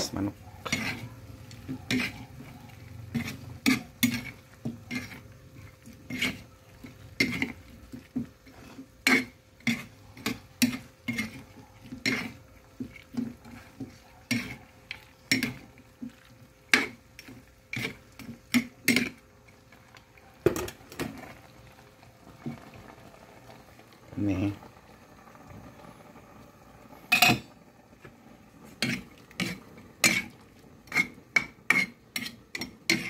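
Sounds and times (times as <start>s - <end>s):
metal ladle scraping a pan: 0.6s - 19.2s, 28.6s - 33.0s.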